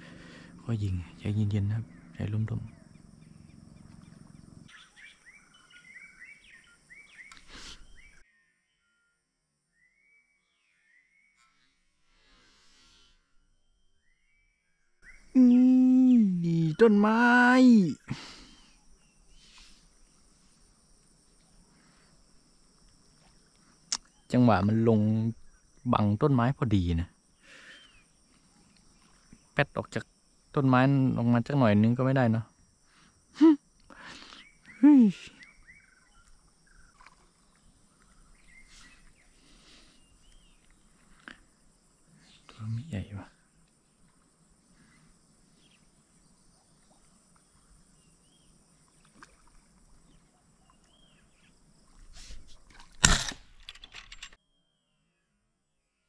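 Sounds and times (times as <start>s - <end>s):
high insect drone: 0.0s - 8.2s, 15.0s - 54.3s
faint rustle: 51.8s - 54.4s.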